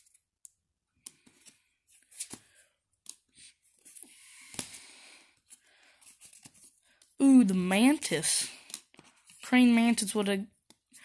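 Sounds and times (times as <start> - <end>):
paper rustling: 1.2 - 7.0.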